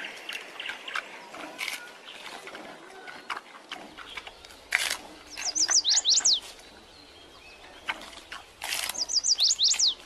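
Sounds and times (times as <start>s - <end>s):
high chirping calls: 4.0s - 10.0s.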